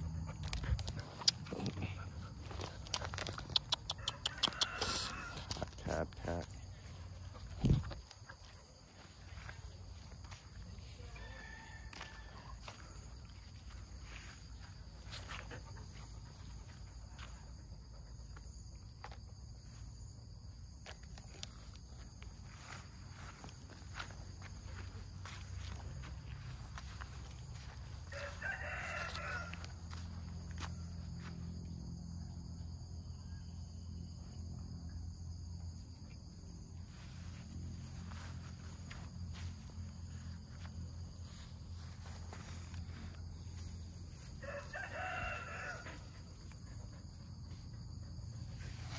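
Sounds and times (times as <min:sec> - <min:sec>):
insects chirring: 0:00.0 - 0:48.9
footsteps on gravel: 0:00.6 - 0:14.4, 0:22.6 - 0:31.4.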